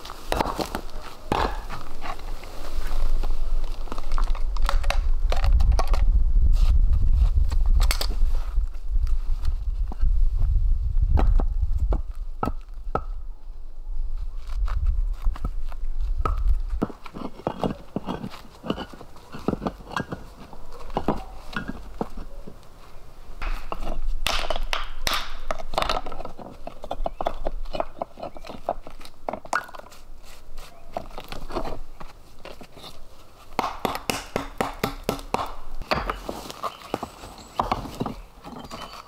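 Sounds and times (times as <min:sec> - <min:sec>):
stones knocking together: 0:00.3 - 0:02.1, 0:23.4 - 0:29.9, 0:33.6 - 0:39.0
dry leaves crunching underfoot: 0:36.1 - 0:38.3.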